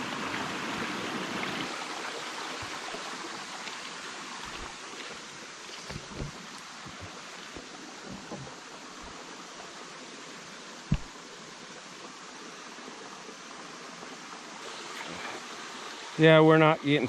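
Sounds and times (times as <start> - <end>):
creek rushing: 0.0 - 17.0
soft low knocks: 5.9 - 9.2, 10.9 - 11.1
sharp low thump: 10.9 - 11.1.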